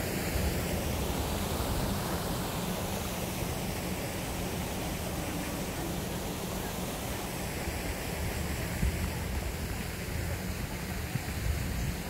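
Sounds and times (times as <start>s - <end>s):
wind buffeting microphone: 7.8s - 12.0s.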